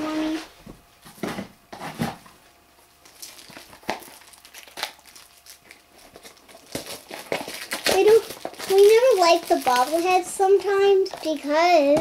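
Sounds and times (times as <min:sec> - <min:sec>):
plastic shrink wrap crackling: 0:03.0 - 0:12.0.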